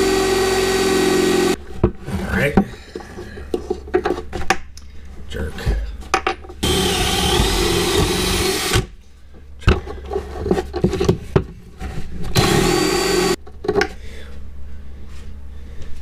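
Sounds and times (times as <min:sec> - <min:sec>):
cordless drill boring into wood: 0:00.0 - 0:01.6, 0:06.6 - 0:08.9, 0:12.4 - 0:13.4
drill driving a screw: 0:00.0 - 0:01.6, 0:06.6 - 0:08.9, 0:12.4 - 0:13.4.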